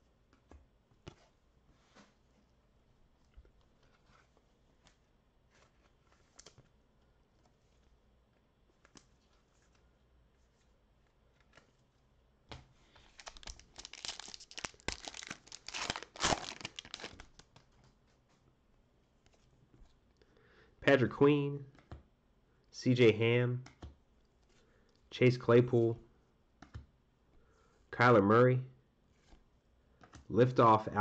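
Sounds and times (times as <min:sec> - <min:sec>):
foil wrapper tearing and crinkling: 0:13.1 - 0:17.5.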